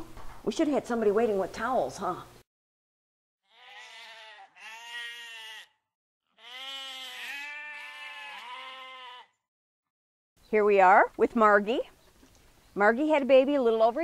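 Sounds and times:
goats bleating: 0:03.4 - 0:09.4.

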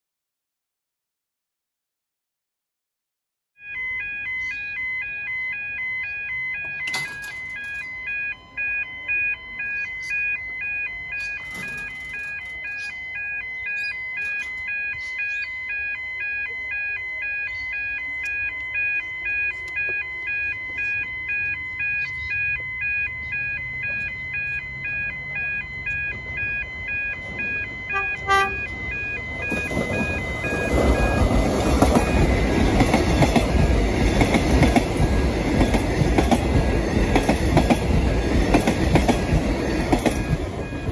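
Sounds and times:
level crossing bells ringing: 0:03.6 - 0:40.9
electric train rumble: 0:23.6 - 0:40.9.

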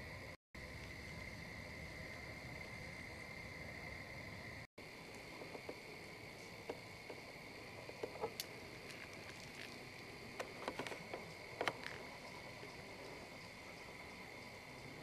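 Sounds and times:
crickets trilling: 0:00.0 - 0:15.0
faint clicks and rustles: 0:05.0 - 0:13.9.

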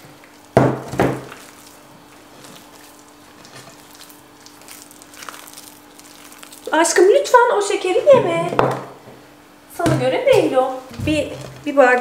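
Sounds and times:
hands kneading dough: 0:00.0 - 0:07.4
low steady hum: 0:00.0 - 0:12.0.

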